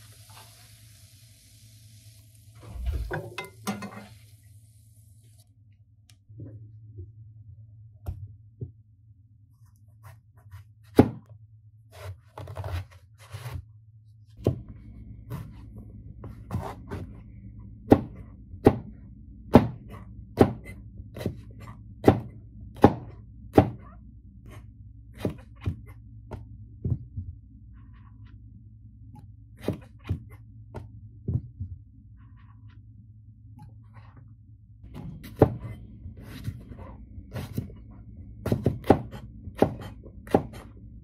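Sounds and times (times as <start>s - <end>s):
knife chopping on plastic board: 10.9s - 11.2s, 17.9s - 18.9s, 19.5s - 23.8s, 35.0s - 36.6s, 38.4s - 40.7s.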